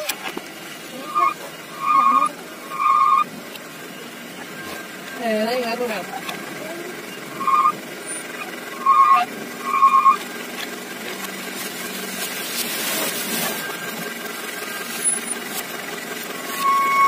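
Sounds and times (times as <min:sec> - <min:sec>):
dump truck engine running: 0:00.0 - 0:17.0
hydraulic hoist raising: 0:16.4 - 0:17.0
short high-pitched beeps: 0:16.5 - 0:17.0.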